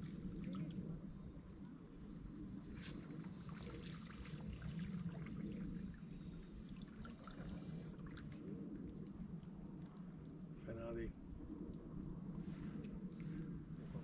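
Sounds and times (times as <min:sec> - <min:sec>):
small water splashes: 0:02.7 - 0:10.6.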